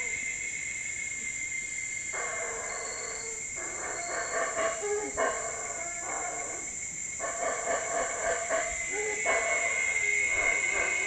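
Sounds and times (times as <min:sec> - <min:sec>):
howler monkeys roaring: 0:02.2 - 0:11.0
high-pitched whine: 0:08.5 - 0:11.0.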